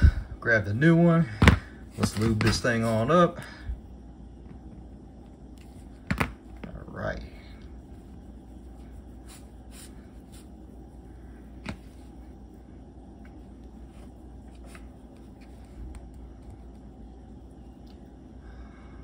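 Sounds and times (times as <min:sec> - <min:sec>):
steady low hum: 0:00.0 - 0:19.0
soft rubbing of rubber: 0:05.6 - 0:16.7.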